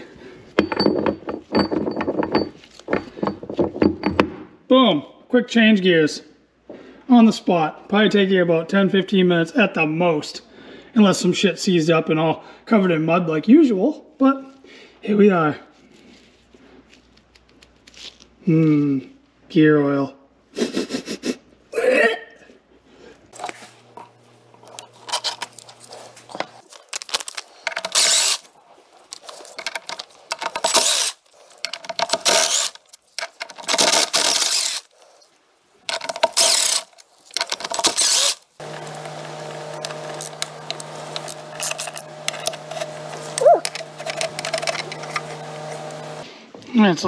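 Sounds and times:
power driver spinning bolts: 0:27.6 - 0:28.5, 0:29.1 - 0:34.9, 0:35.9 - 0:46.2
hand ratchet clicking: 0:27.7 - 0:28.4, 0:29.6 - 0:34.9, 0:35.9 - 0:46.0.

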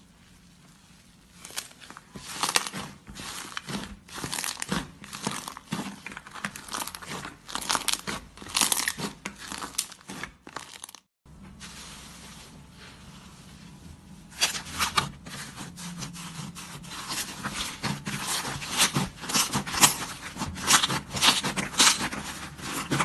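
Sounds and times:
fluffy slime rustling: 0:00.0 - 0:23.0
slime crackling and popping: 0:01.4 - 0:11.1, 0:17.0 - 0:23.0.

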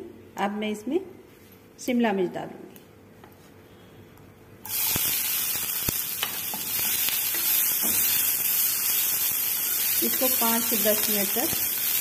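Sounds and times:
vegetables sizzling in hot oil: 0:04.6 - 0:12.0.

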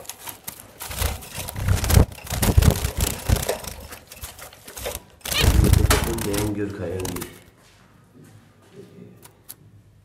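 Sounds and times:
dry grass rustling: 0:00.0 - 0:07.2.

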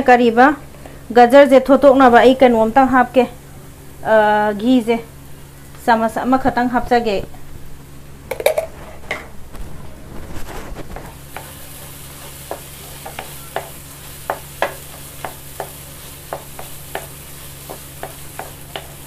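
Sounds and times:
carrots sizzling in pan: 0:09.5 - 0:19.0
spatula scraping pan: 0:10.2 - 0:19.0.

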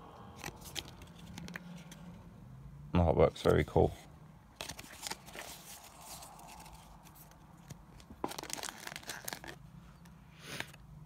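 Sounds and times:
paper packaging rustling: 0:00.4 - 0:02.1, 0:04.6 - 0:09.7.

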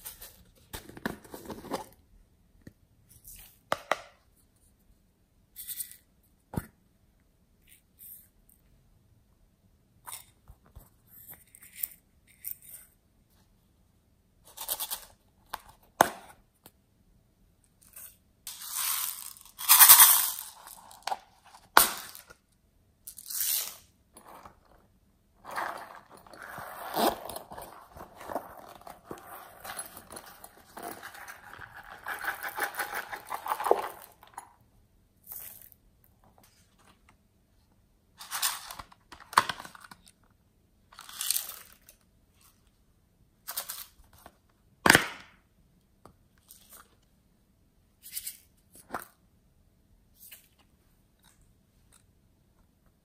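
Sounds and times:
rattling patter of falling beads: 0:18.5 - 0:21.1.

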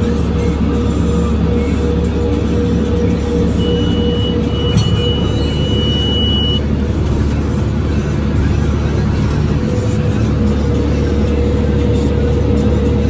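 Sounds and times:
tractor diesel engine drone: 0:00.0 - 0:13.0
high electronic beep: 0:03.5 - 0:06.7.

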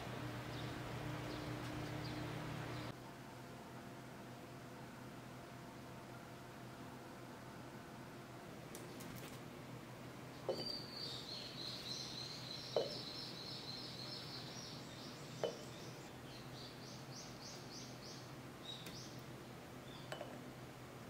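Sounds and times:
bird chirping: 0:00.4 - 0:02.9, 0:10.4 - 0:20.3
light knocks against glass jar: 0:10.5 - 0:10.8, 0:12.8 - 0:13.0, 0:15.4 - 0:15.7, 0:20.1 - 0:20.4.

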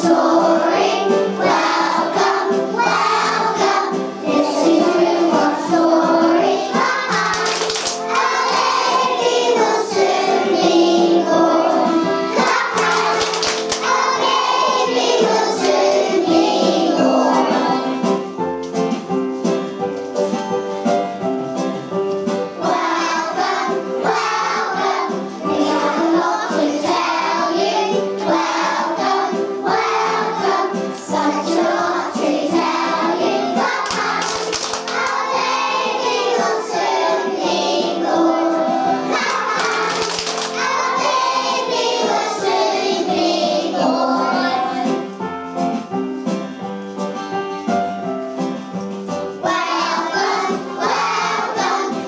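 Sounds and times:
children singing a carol: 0:00.0 - 0:07.5, 0:08.1 - 0:18.2, 0:22.6 - 0:34.3, 0:34.9 - 0:40.0, 0:40.6 - 0:45.1, 0:49.4 - 0:52.0
instrumental backing: 0:00.2 - 0:28.2.

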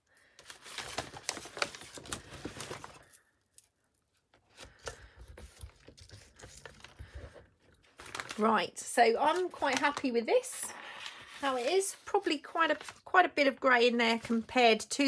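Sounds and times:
paper rustling and crackling: 0:00.3 - 0:03.2, 0:04.4 - 0:13.1.

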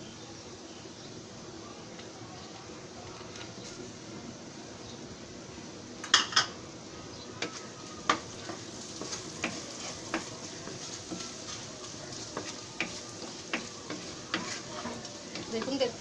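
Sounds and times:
food sizzling in a pan: 0:00.0 - 0:16.0
spoon knocking and scraping pan: 0:07.4 - 0:16.0.

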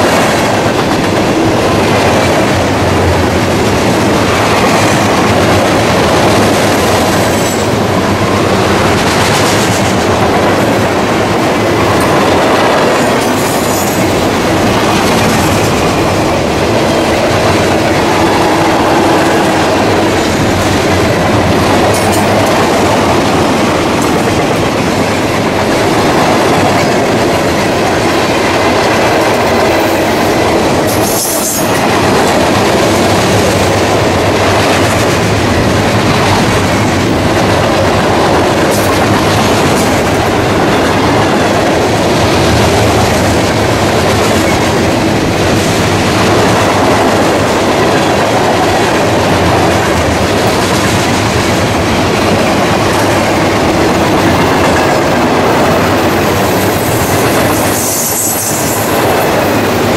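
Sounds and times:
freight train wheels rumbling: 0:00.0 - 0:59.9
high screech of train: 0:11.6 - 0:20.8, 0:29.2 - 0:32.5, 0:54.4 - 0:59.9.

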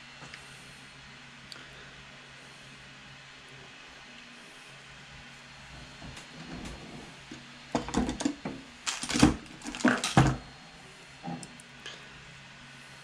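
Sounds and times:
wires and pliers clattering: 0:07.8 - 0:10.5.

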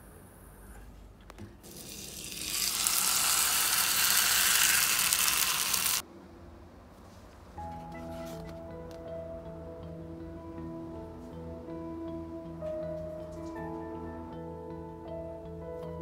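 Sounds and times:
steak sizzling: 0:01.7 - 0:06.0.

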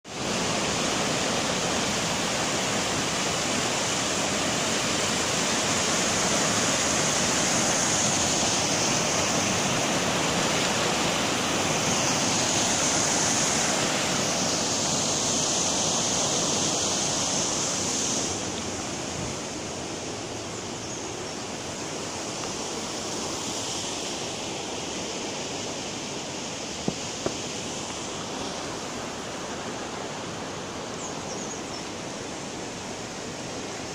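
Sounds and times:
water rushing over weir: 0:00.1 - 0:33.9.

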